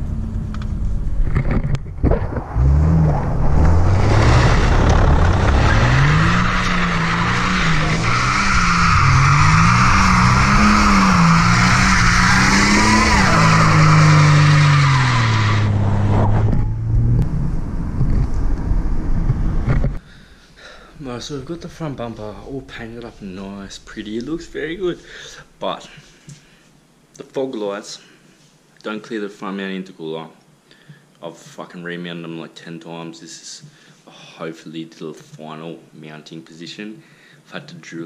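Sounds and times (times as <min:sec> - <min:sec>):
tyres spinning and squealing: 0:02.2 - 0:16.8
car engine revving hard: 0:02.5 - 0:18.1.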